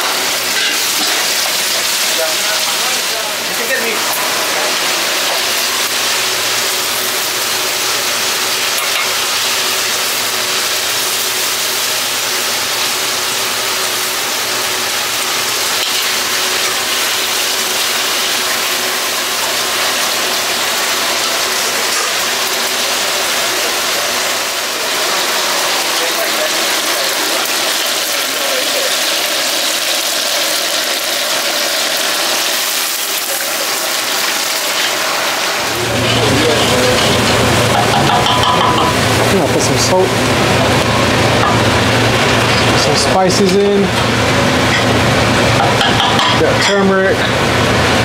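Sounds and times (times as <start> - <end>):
constant mechanical hum: 0.0 - 48.0
vegetables sizzling in oil: 0.0 - 48.0.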